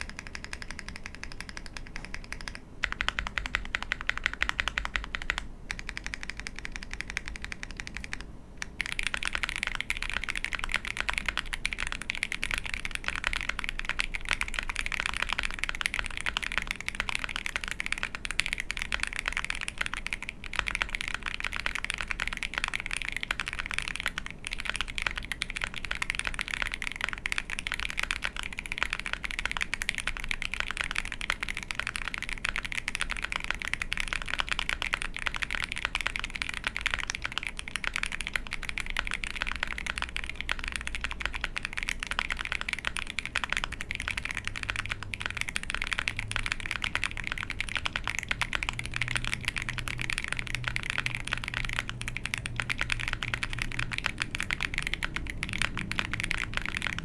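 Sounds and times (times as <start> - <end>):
mechanical keyboard key clacks: 0.0 - 57.0.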